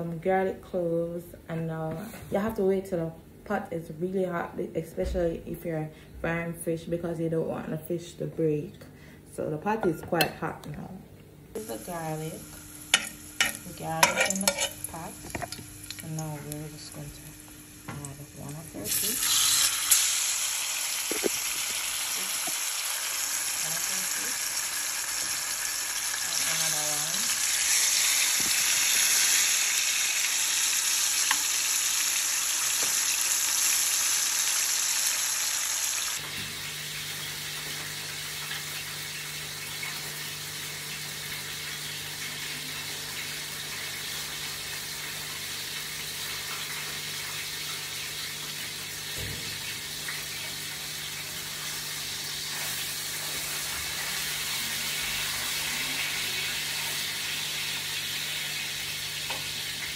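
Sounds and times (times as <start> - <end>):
low steady hum: 0.0 - 20.4
fish sizzling in oil: 11.6 - 59.9.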